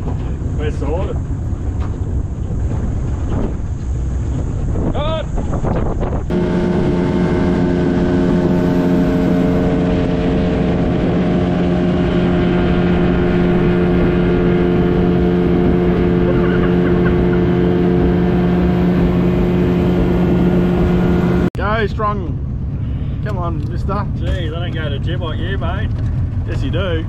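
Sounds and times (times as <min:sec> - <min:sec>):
water rushing from wake: 0:00.0 - 0:21.5
outboard motor drone: 0:00.0 - 0:27.0.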